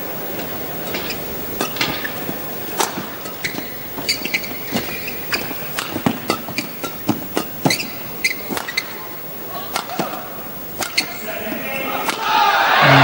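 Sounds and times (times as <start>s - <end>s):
shoes squeaking on court floor: 0.0s - 12.2s
players' footwork on court: 0.0s - 12.4s
arena crowd hum: 0.0s - 13.0s
rackets striking shuttlecock: 0.8s - 11.3s, 11.9s - 12.4s.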